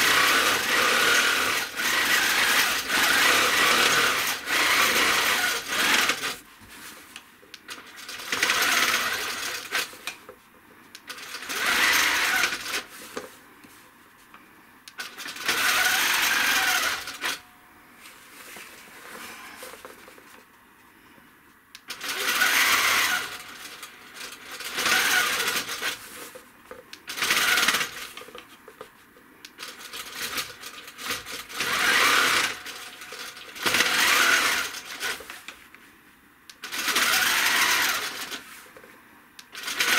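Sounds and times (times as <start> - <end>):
quilting machine needle stitching: 0.0 - 6.4, 7.7 - 10.0, 21.9 - 26.0, 27.1 - 28.2, 29.6 - 35.4, 36.6 - 38.4, 39.6 - 39.9.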